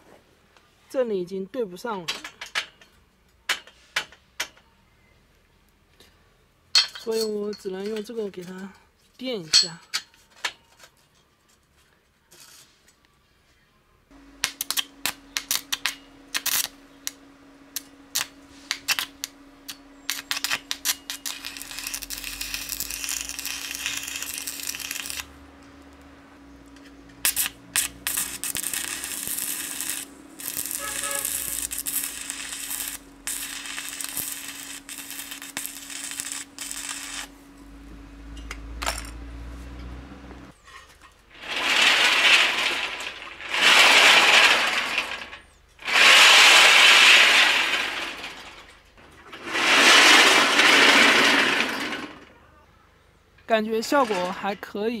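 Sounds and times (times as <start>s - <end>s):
arc welding crackling sizzle: 14.1s - 40.6s, 41.3s - 48.3s
steady hum: 14.1s - 40.6s.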